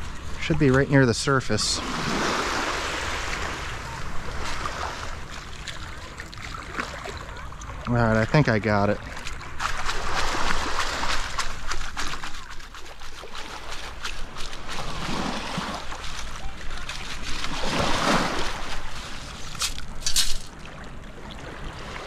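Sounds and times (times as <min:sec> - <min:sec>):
water sloshing: 0:00.0 - 0:22.0
metal scoop digging wet sand: 0:09.7 - 0:20.6
shells rattling in metal scoop: 0:19.4 - 0:20.6.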